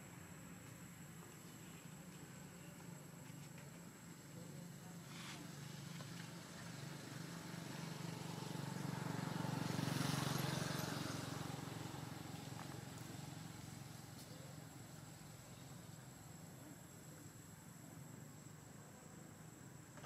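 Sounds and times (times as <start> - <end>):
engine passing by: 4.9 - 16.4.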